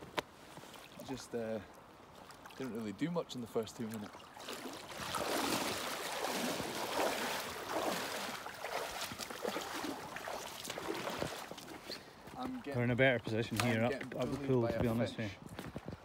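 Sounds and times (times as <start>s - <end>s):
boots wading through water: 0.0s - 12.8s.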